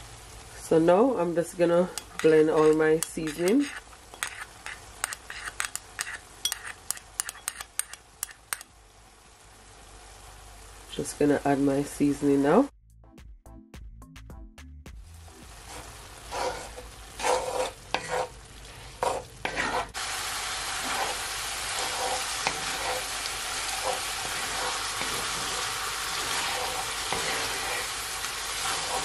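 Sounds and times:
meat sizzling in a skillet: 0:00.0 - 0:12.5, 0:15.1 - 0:29.0
wooden spoon stirring and scraping: 0:01.9 - 0:07.9, 0:15.6 - 0:29.0.

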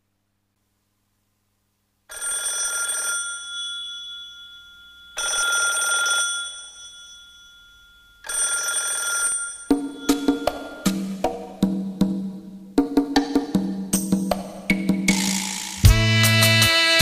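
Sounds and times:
trilling bell ring: 0:03.3 - 0:11.2.

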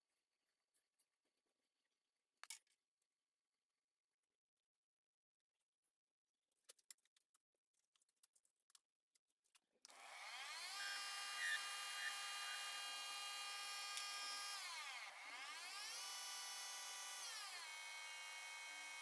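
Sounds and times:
lathe motor whine: 0:09.9 - 0:19.0.

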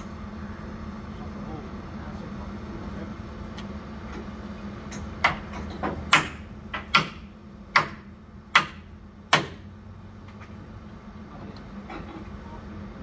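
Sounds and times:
hammer striking metal: 0:05.0 - 0:09.6.

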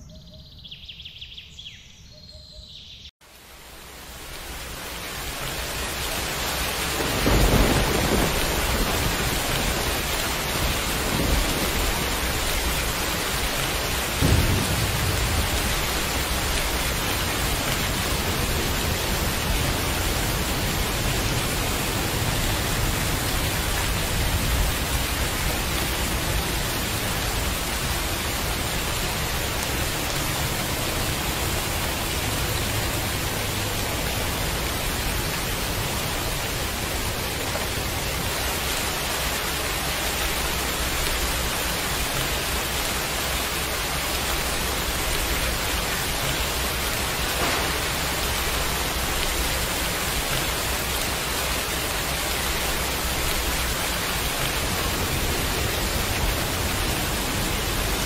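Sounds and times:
heavy rain falling: 0:03.2 - 0:58.0
thunder rumbling: 0:06.8 - 0:33.3, 0:44.8 - 0:50.9.

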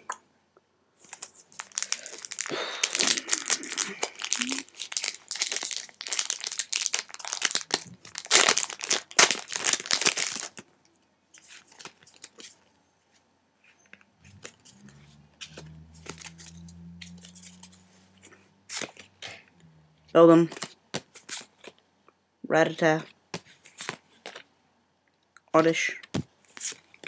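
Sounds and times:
foil wrapper crinkling and tearing: 0:01.0 - 0:10.6, 0:11.4 - 0:12.5, 0:16.0 - 0:16.6.

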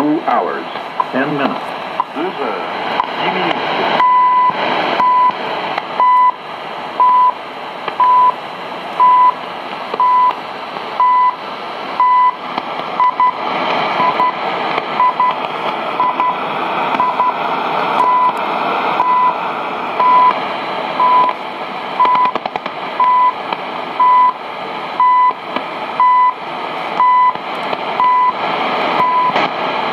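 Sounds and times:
radio static: 0:00.0 - 0:29.9
short radio beeps: 0:04.0 - 0:05.4, 0:12.0 - 0:12.4.

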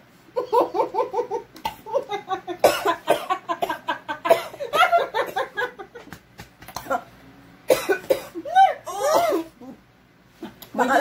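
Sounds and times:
women laughing: 0:00.4 - 0:06.2.

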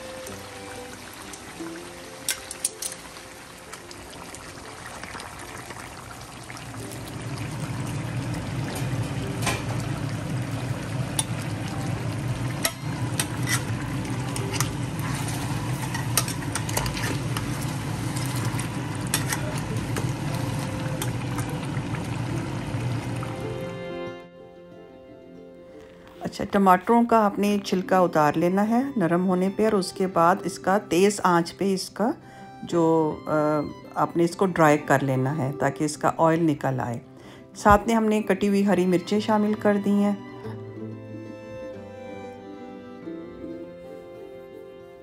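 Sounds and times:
charcoal crackling: 0:00.0 - 0:23.4
stove flame rushing: 0:04.6 - 0:23.6.

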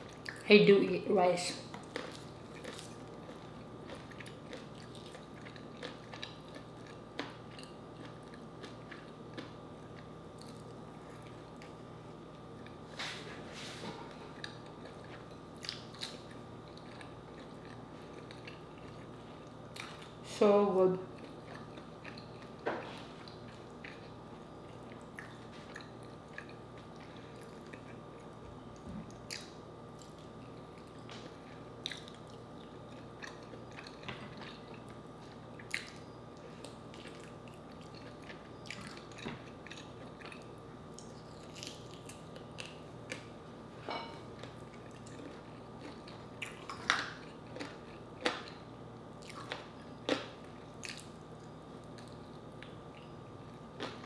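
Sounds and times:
faint steady hum: 0:00.0 - 0:54.0
wet chewing: 0:01.8 - 0:11.8, 0:21.2 - 0:28.3, 0:29.1 - 0:43.3, 0:49.2 - 0:53.1.

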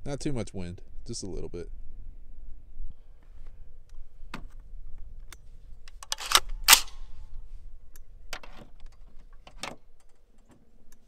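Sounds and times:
rifle handling clicks and knocks: 0:05.2 - 0:07.2, 0:07.9 - 0:11.0.

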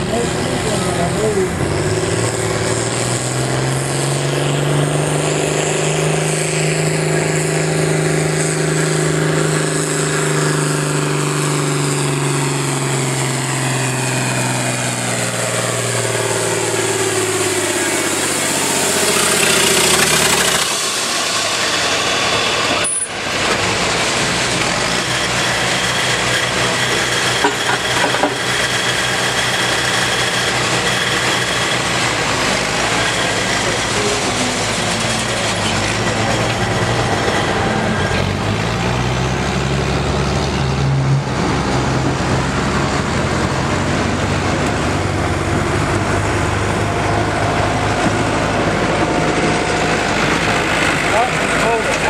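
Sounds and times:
tractor engine idling: 0:00.0 - 0:02.8, 0:14.6 - 0:52.0
tractor engine under full load: 0:00.0 - 0:52.0.

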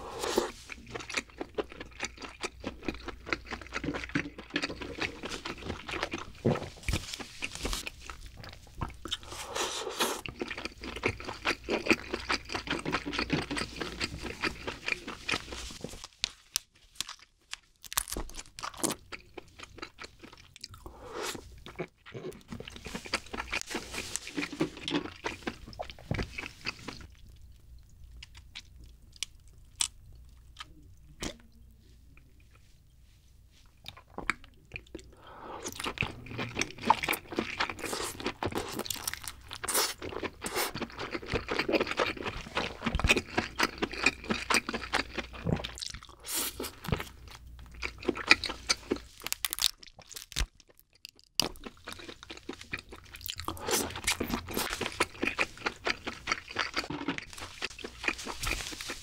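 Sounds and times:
chewing crab meat: 0:00.3 - 0:16.0, 0:17.0 - 0:32.6, 0:33.7 - 0:59.0
crab shell crunching and clicking: 0:48.8 - 0:57.4.

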